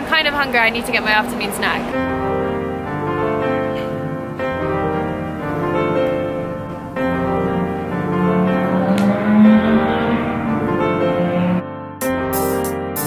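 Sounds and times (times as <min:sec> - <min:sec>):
calm piano instrumental: 0:00.0 - 0:13.0.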